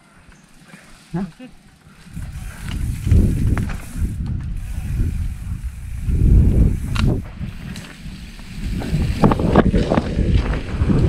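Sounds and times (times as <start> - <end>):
bike rattling and clicking: 0.0 - 11.0
ground rumble and wind noise: 0.0 - 11.0.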